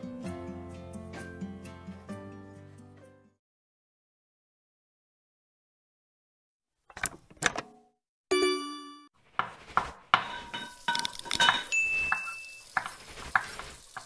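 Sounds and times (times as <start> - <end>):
bell ding: 8.3 - 9.1, 11.7 - 12.6
pots and pans clattering: 10.2 - 14.0.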